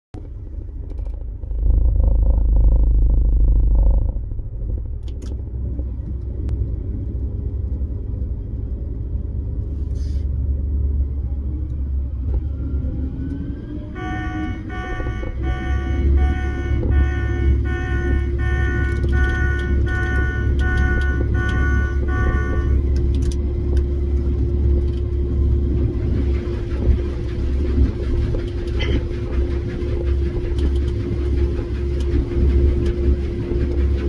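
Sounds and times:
combine harvester rumble from cab: 0:00.2 - 0:34.0
repeating pulsed tone: 0:14.0 - 0:22.9.

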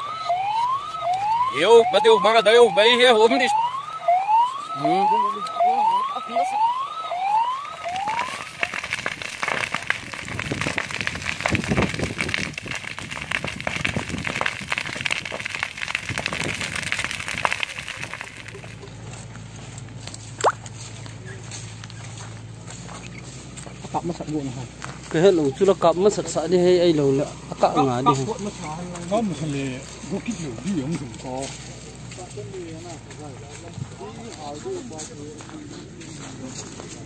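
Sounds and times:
siren whooping: 0:00.0 - 0:10.0
brush fire crackling and popping: 0:07.2 - 0:37.0
sharp blip: 0:20.4 - 0:20.6.

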